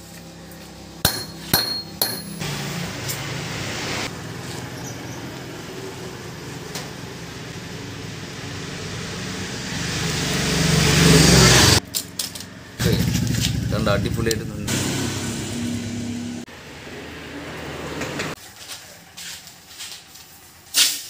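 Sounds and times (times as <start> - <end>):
hammer striking metal: 1.0 - 2.7.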